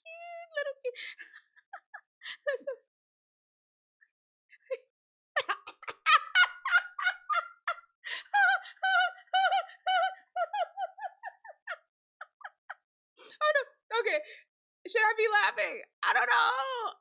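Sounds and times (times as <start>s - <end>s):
woman laughing hard: 0.4s - 2.8s, 5.4s - 12.8s.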